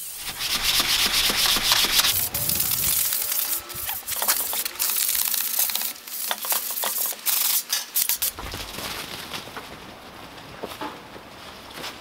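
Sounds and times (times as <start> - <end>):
hand sanding steel frame: 0.0 - 8.3.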